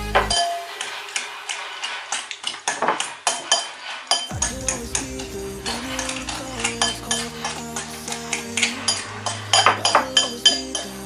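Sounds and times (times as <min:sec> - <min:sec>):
background music: 0:00.0 - 0:01.2, 0:04.3 - 0:11.0
metal utensil scraping glass bowl: 0:00.2 - 0:04.3.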